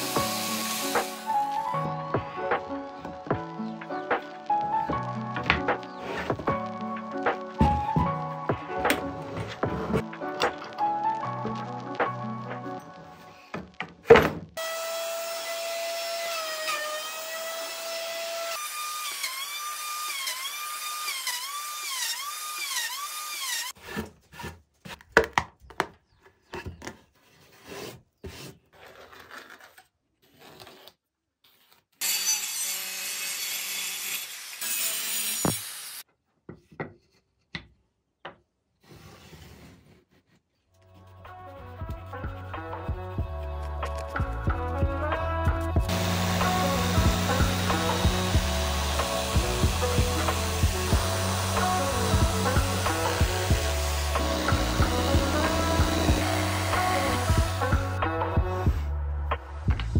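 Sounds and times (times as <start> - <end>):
hiss: 0.0 - 1.3
power tool cutting wood: 0.0 - 1.8, 14.6 - 23.8, 32.0 - 36.0, 45.9 - 58.2.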